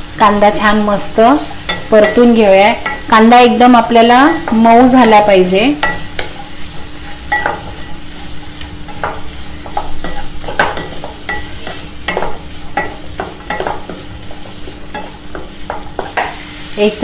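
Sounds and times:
onions sizzling in hot oil: 0.0 - 17.0
spatula scraping a pan: 5.8 - 16.8.

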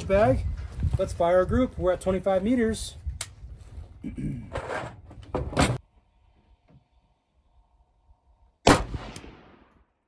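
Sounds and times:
rifle shot with echo: 8.6 - 10.0.

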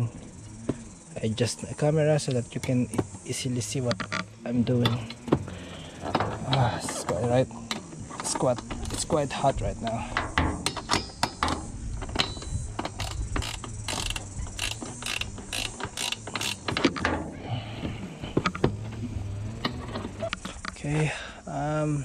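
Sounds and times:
ratcheting wrench clicking: 7.7 - 17.2.

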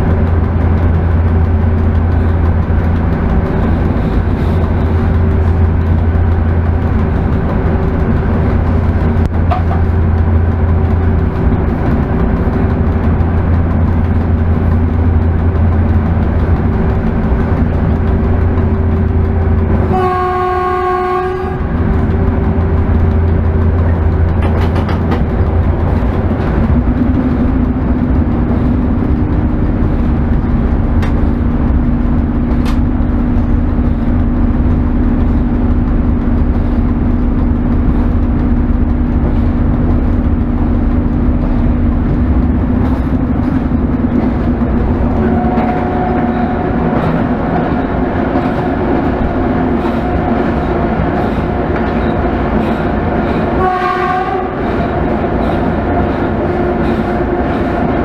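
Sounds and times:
locomotive low hum: 0.0 - 58.0
wheel-on-rail noise: 0.0 - 58.0
locomotive horn: 19.8 - 21.8, 45.2 - 46.9, 53.5 - 55.0.

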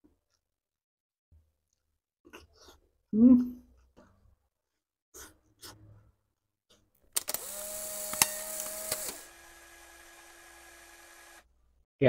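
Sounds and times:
sharp clicks: 7.1 - 9.3.

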